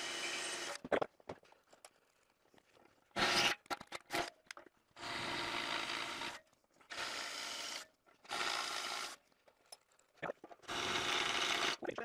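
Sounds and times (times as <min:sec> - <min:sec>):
cordless drill boring into steel: 0:10.7 - 0:11.8.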